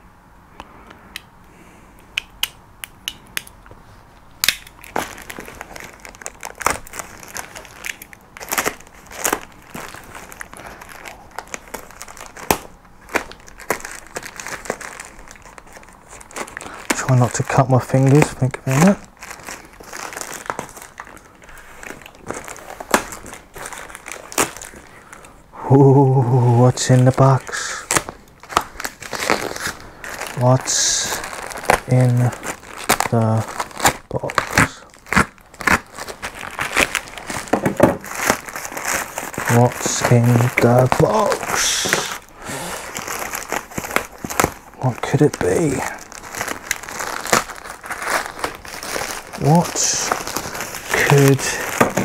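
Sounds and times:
sharp plastic cracks: 2.0s - 10.7s, 11.4s - 15.6s, 21.9s - 25.3s, 43.1s - 52.0s
plastic wrapping crinkling: 2.4s - 52.0s.

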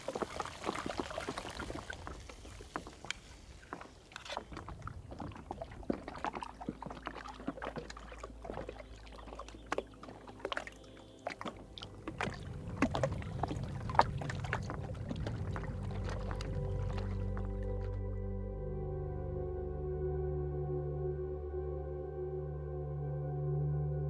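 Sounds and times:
small waves lapping against hull: 0.0s - 18.0s
low steady tone: 4.8s - 24.0s.

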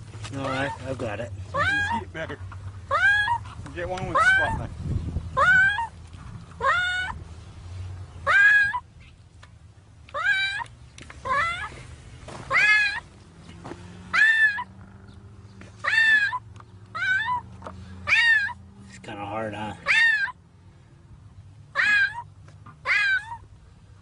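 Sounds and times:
cat meowing: 12.5s - 13.0s, 14.1s - 14.7s, 17.0s - 17.5s, 18.1s - 18.6s, 19.8s - 20.3s, 21.8s - 23.4s.

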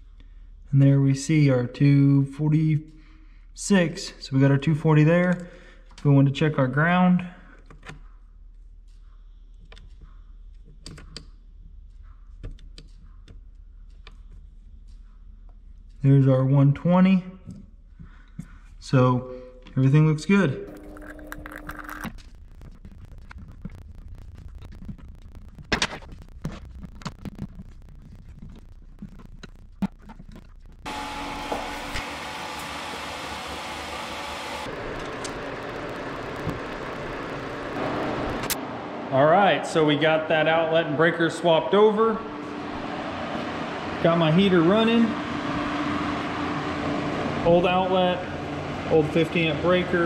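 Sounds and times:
low steady hum: 0.0s - 50.0s
electric heater fan whirring: 30.9s - 50.0s.

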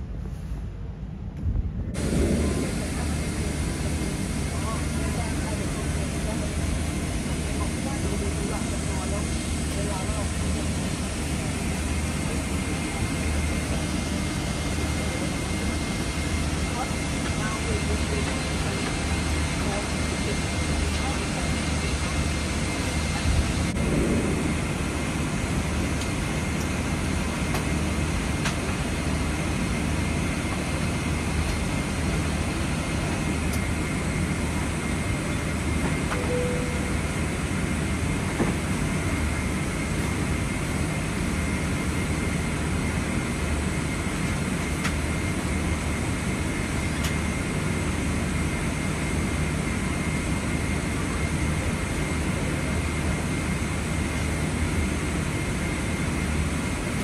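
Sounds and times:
low cabin rumble: 0.0s - 48.6s
thin steady whine: 2.0s - 57.0s
faint tone: 36.1s - 37.3s.

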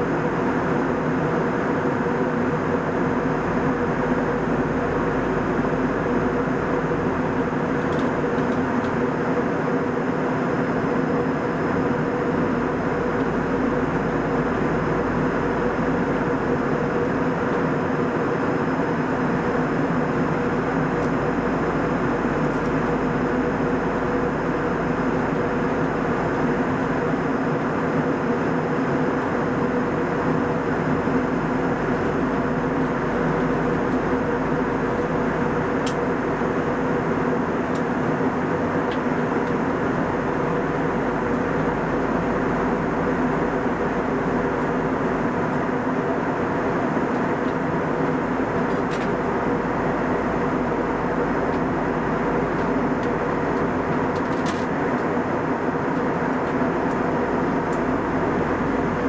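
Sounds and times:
airplane cabin airflow and engine noise: 0.0s - 59.0s
constant low hum: 0.0s - 59.0s.

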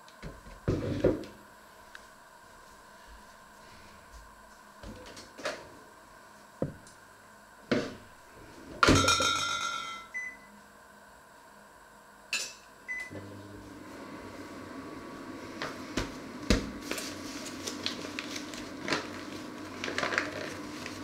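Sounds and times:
kitchenware clattering: 8.8s - 10.1s.

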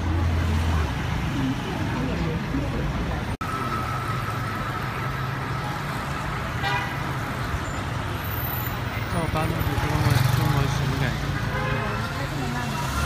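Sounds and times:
passing cars and scooters: 0.0s - 13.0s
car horn toot: 6.6s - 7.0s.

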